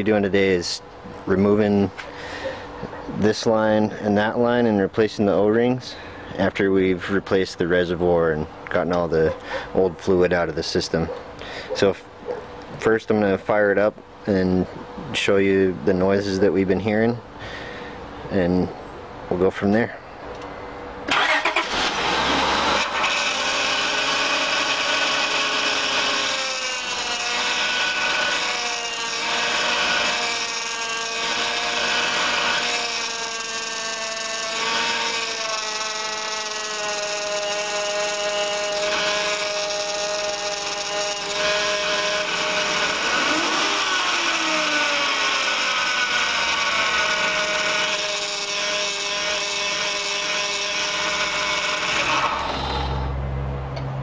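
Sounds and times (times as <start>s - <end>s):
power steering pump whining: 20.4s - 53.9s.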